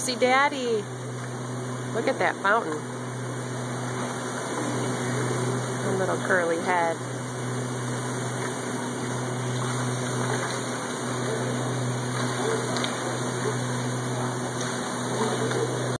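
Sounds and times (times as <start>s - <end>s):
low hum: 0.0s - 16.0s
fountain water splashing: 8.3s - 15.9s.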